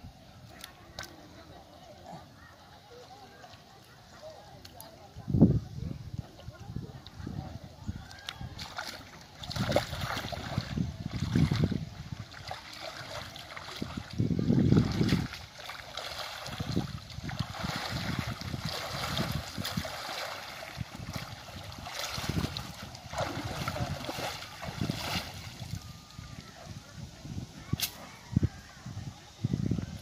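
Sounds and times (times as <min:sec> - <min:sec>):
water sloshing and splashing: 0:06.2 - 0:26.7.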